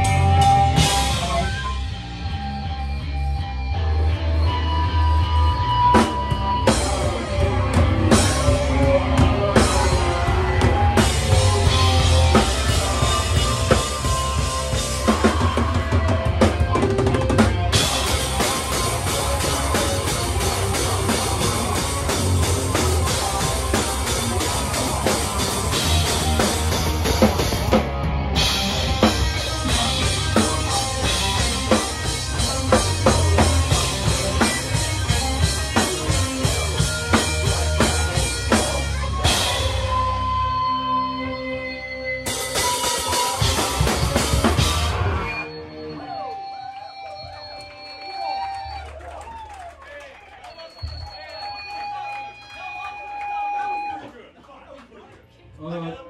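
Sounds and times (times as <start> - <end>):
drum kit: 0.0 - 40.8, 42.2 - 45.6
distorted electric guitars: 0.0 - 48.9
bass guitar: 0.0 - 49.4.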